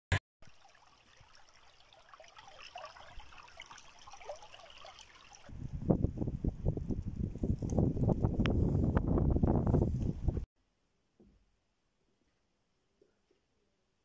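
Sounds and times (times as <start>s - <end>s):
stream trickling over stones: 0.4s - 5.6s.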